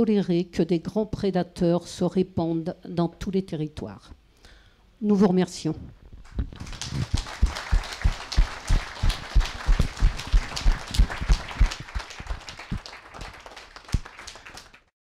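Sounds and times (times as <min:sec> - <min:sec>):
loud close claps: 0:06.2 - 0:14.9
audience applause: 0:06.5 - 0:14.9.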